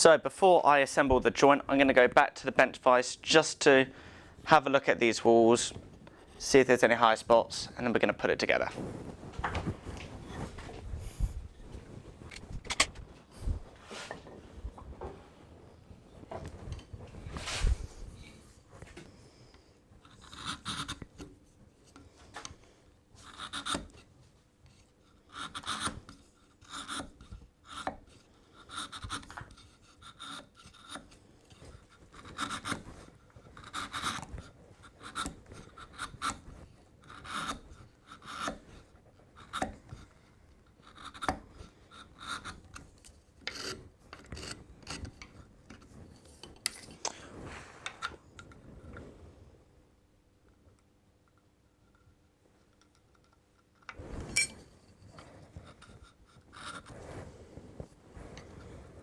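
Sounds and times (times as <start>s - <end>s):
chisel scraping wood: 18.2s - 22.2s, 23.2s - 47.0s, 54.8s - 57.1s.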